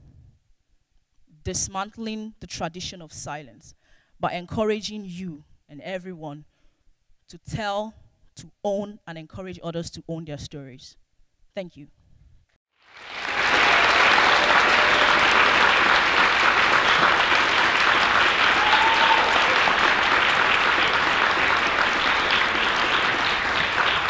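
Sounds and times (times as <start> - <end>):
audience applauding: 12.8 - 24.0.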